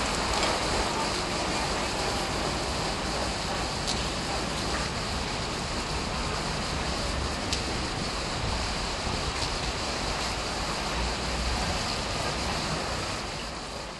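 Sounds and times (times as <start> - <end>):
wind buffeting microphone: 0.0 - 13.4
wind and rain rushing: 0.0 - 13.9.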